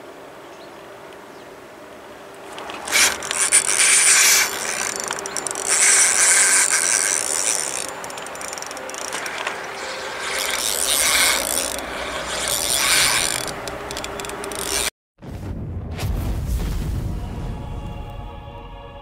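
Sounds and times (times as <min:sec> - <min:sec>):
fishing reel whirring: 0:02.4 - 0:14.9.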